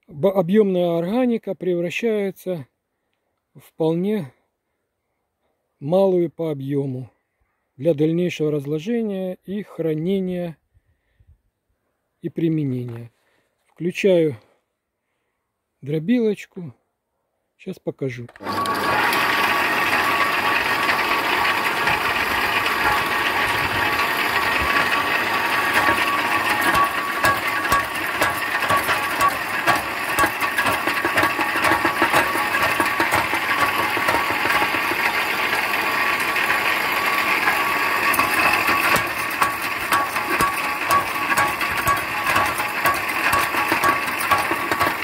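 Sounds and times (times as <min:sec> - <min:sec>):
branch shredder rattling: 0:18.3 - 0:45.0.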